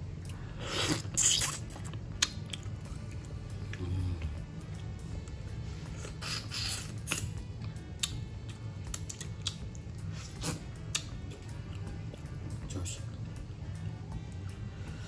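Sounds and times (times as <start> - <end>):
chewing and lip smacks: 0.2 - 5.4, 6.0 - 12.6.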